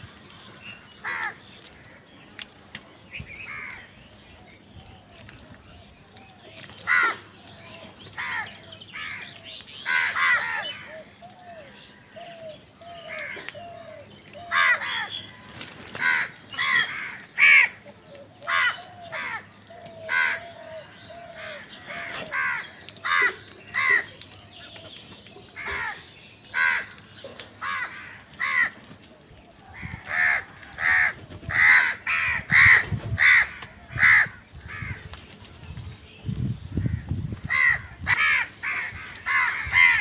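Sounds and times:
crows cawing: 0:00.8 - 0:02.0, 0:03.4 - 0:03.9, 0:06.8 - 0:07.3, 0:08.2 - 0:11.4, 0:12.2 - 0:24.2, 0:25.6 - 0:27.0, 0:27.6 - 0:28.9, 0:29.6 - 0:35.1, 0:36.8 - 0:40.0.

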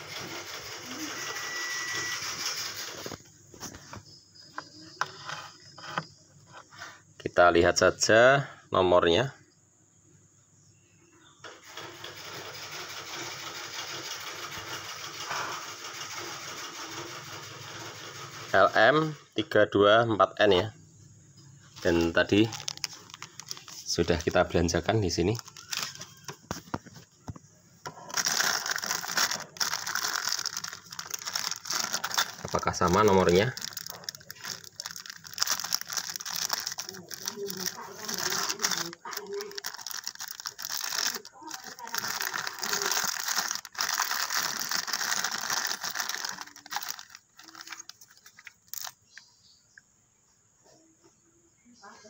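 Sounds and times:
crackling rustle: 0:21.7 - 0:27.2, 0:27.8 - 0:49.2.

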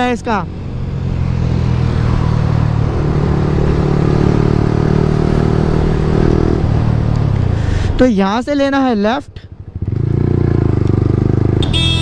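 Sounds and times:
motorcycle engine running: 0:09.5 - 0:12.0.

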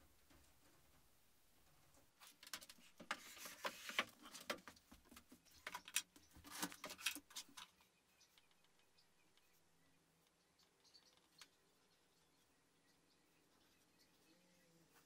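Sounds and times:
paper rustling: 0:02.2 - 0:05.8.

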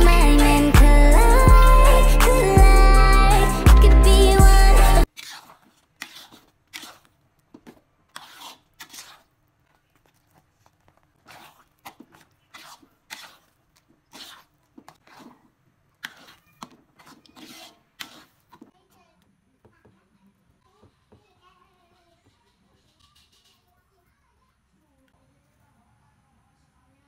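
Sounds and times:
spatula scraping mashed potato: 0:05.0 - 0:18.8.

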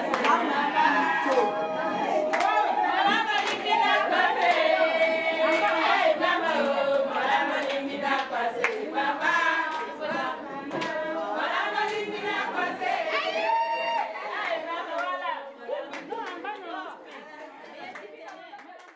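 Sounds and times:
handclaps: 0:00.0 - 0:00.5, 0:01.2 - 0:01.5, 0:02.3 - 0:04.7, 0:05.5 - 0:11.0, 0:15.9 - 0:18.9
group of voices singing: 0:00.0 - 0:18.9.

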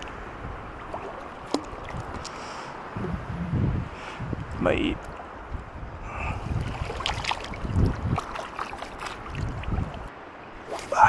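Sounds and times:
wind buffeting microphone: 0:00.0 - 0:11.0
shallow water lapping: 0:00.7 - 0:02.8, 0:06.1 - 0:11.0.

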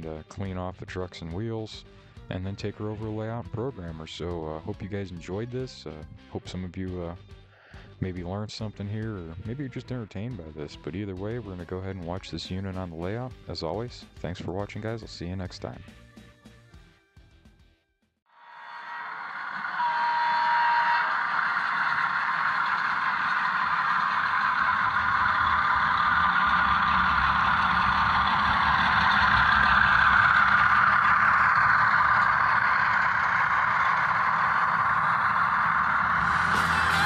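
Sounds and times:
model train motor whirring: 0:18.4 - 0:37.0
low rumble: 0:22.0 - 0:37.0.

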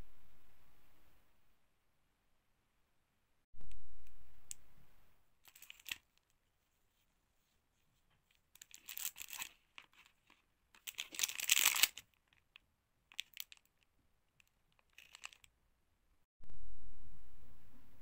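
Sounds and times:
packaging tearing and crinkling: 0:05.5 - 0:06.1, 0:08.6 - 0:13.8, 0:14.7 - 0:15.5
low rumble: 0:16.4 - 0:18.0.

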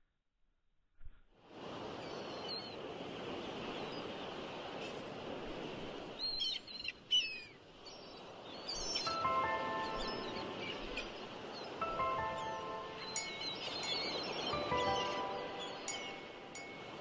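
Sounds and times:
birds chirping: 0:06.1 - 0:17.0.

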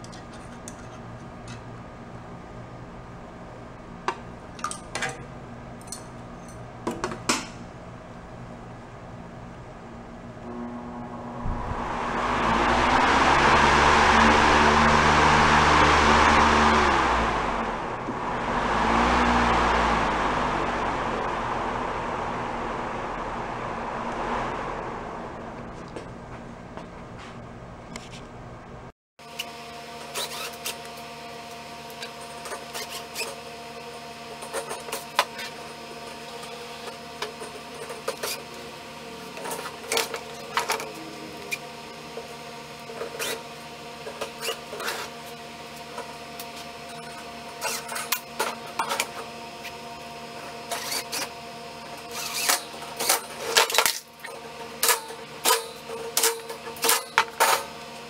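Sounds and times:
faint steady hum: 0:07.6 - 0:28.9.

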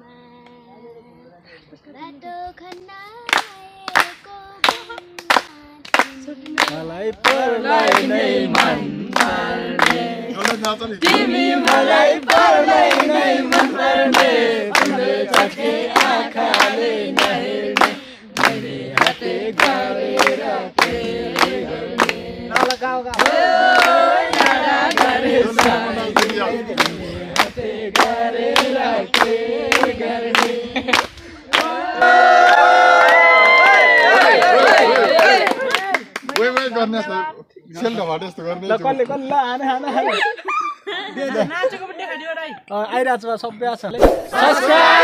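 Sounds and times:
hand-clapping: 0:02.7 - 0:31.8, 0:34.2 - 0:36.8
children singing together: 0:07.4 - 0:10.4, 0:44.2 - 0:45.0.

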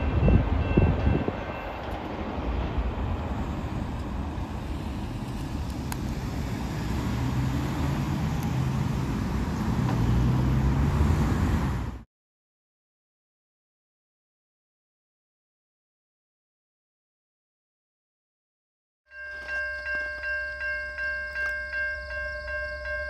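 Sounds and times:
cars driving past: 0:00.0 - 0:12.1.

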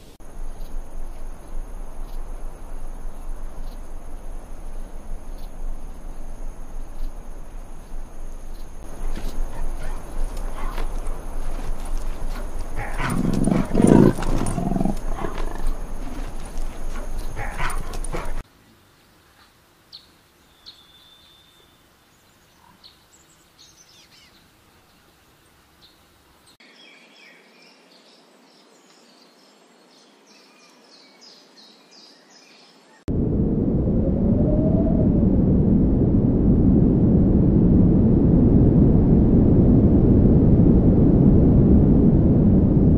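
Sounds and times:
leopard growling: 0:08.9 - 0:18.4.

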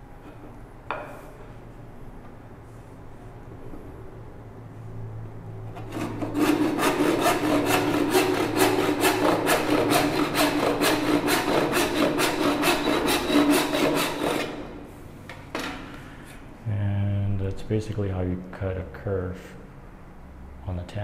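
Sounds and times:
hand saw cutting wood: 0:05.8 - 0:14.8.

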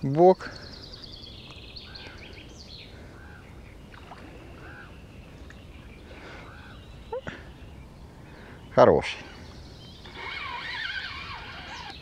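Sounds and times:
bird calling faintly: 0:00.5 - 0:12.0.

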